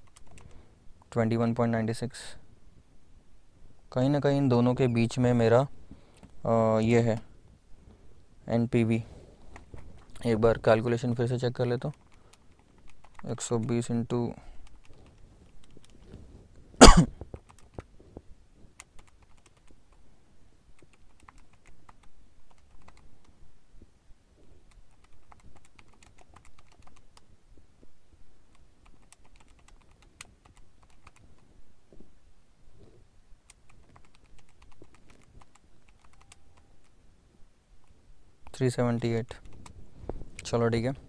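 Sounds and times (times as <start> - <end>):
calculator keys clicking: 0.0 - 0.6, 11.7 - 13.8, 17.2 - 17.9, 18.8 - 19.8, 20.8 - 23.3, 24.7 - 27.3, 28.5 - 31.2, 33.5 - 36.9.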